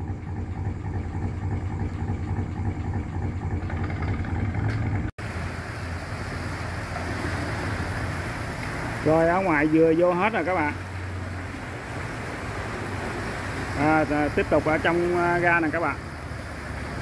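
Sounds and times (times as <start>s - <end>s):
boat engine throbbing: 0.0s - 17.0s
rushing hiss: 5.2s - 17.0s.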